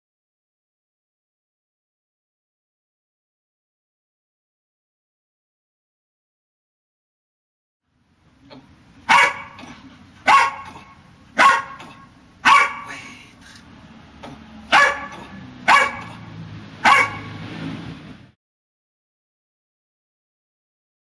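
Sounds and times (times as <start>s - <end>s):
dog barking: 9.1s - 13.0s, 14.7s - 17.4s.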